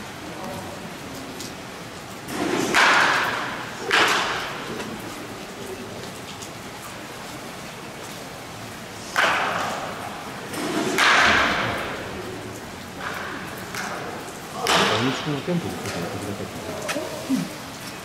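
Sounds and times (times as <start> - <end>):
bat cracking against ball: 2.5 - 4.6, 10.6 - 11.9.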